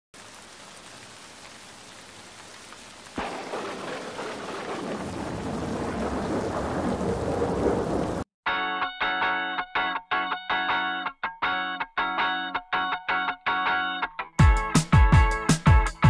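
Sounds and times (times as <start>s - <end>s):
rain hiss: 0.2s - 8.2s
thunder crack rolling: 3.2s - 8.3s.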